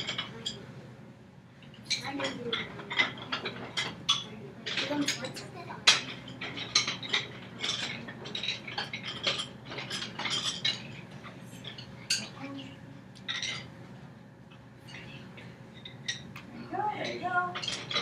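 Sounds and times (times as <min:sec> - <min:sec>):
wooden sticks clacking: 0:01.7 - 0:12.5, 0:14.5 - 0:18.0.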